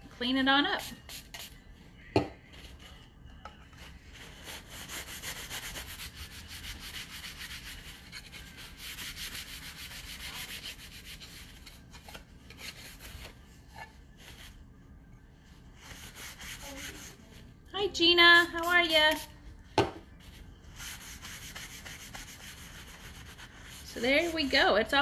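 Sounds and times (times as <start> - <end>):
paper towel scrubbing chalkboard: 4.1 - 11.5, 15.8 - 17.4, 20.2 - 24.6.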